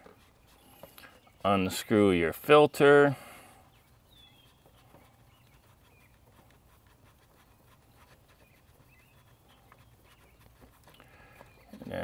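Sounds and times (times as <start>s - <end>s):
faint bird chirps: 0.0s - 2.3s, 3.2s - 12.0s
hand turning oil filter: 3.2s - 12.0s.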